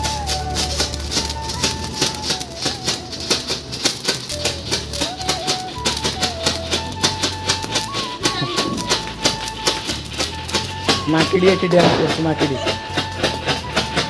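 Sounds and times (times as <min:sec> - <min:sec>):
music with steady beat: 0:00.0 - 0:14.0.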